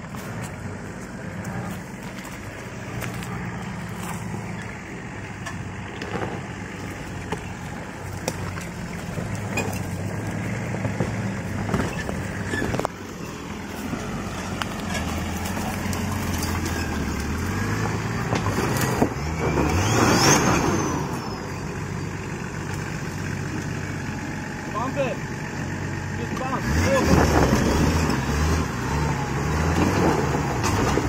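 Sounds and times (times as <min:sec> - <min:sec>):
diesel engine under load: 0:00.0 - 0:31.0
knocks of wheels and body on rocks: 0:05.4 - 0:19.8, 0:29.7 - 0:31.0.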